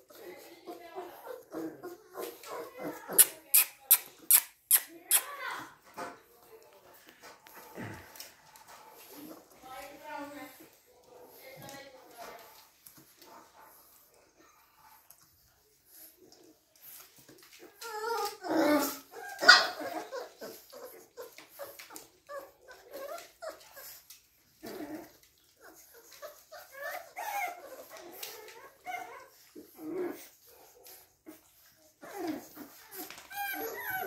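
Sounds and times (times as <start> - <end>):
puppies whimpering: 0.0 - 3.4, 16.1 - 34.0
puppies barking: 18.8 - 21.2.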